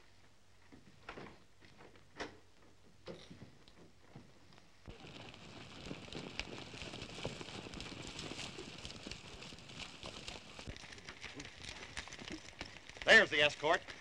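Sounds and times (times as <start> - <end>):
horse hooves clopping: 0.6 - 14.0
steady hiss: 4.3 - 14.0.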